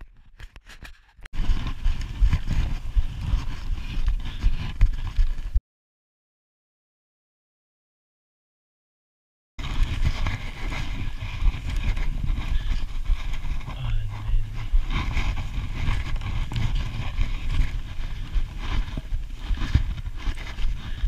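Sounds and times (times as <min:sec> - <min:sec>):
poles planting in snow: 0:00.2 - 0:05.6, 0:09.6 - 0:21.0
skis sliding on snow: 0:09.6 - 0:21.0
wind buffeting microphone: 0:09.6 - 0:21.0.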